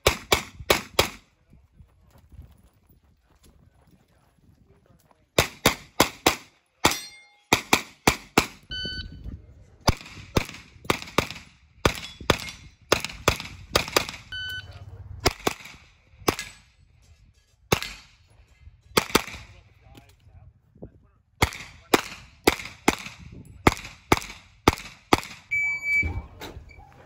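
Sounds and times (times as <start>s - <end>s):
metallic pings: 6.9s - 7.5s
rapid gunfire: 9.9s - 14.3s, 15.2s - 16.5s.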